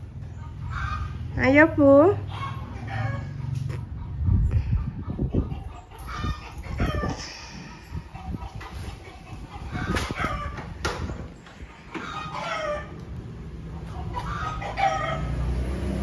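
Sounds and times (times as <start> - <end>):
chickens clucking: 0.0 - 1.6, 2.2 - 15.4
rooster crowing: 14.2 - 15.5.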